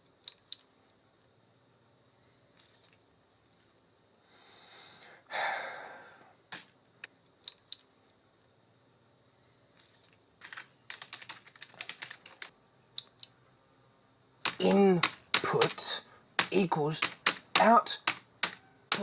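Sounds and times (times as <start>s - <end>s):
scattered clicks: 0.2s - 0.7s, 6.5s - 7.9s
keyboard typing: 9.8s - 13.3s, 14.4s - 19.0s.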